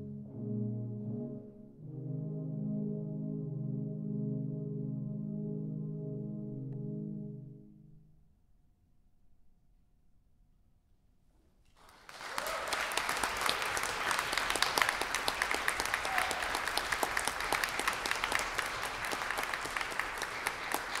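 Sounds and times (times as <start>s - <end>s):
audience applauding: 11.7s - 21.0s.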